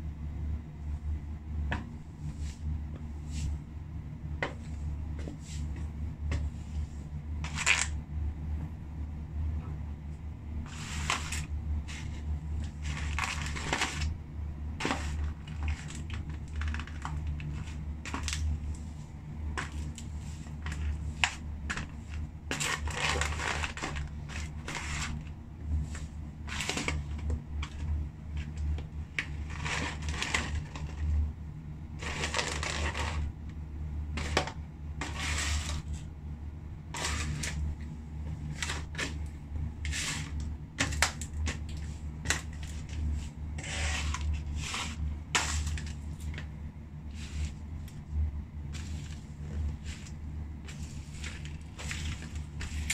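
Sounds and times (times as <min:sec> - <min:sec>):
low hum: 0:00.0 - 0:52.9
shoe crushing paperboard and fries: 0:10.8 - 0:14.1, 0:14.8 - 0:18.5, 0:19.6 - 0:25.3, 0:29.2 - 0:31.1, 0:32.0 - 0:33.3.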